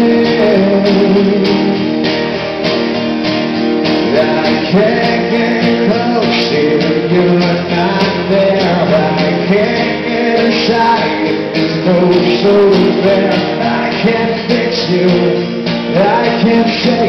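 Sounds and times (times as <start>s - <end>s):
man singing: 0.0s - 1.9s, 4.0s - 17.0s
acoustic guitars: 0.0s - 17.0s.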